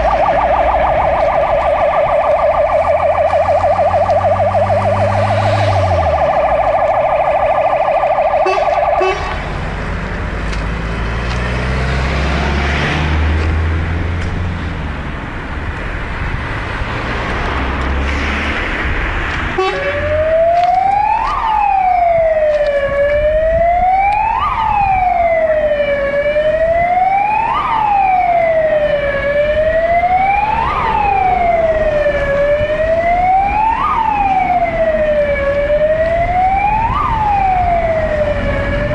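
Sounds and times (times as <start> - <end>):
siren fast warble: 0.0 - 9.4, 19.6 - 38.9
siren slow wail: 0.0 - 9.8, 19.5 - 38.9
diesel engine running low: 0.0 - 16.9, 17.6 - 38.9.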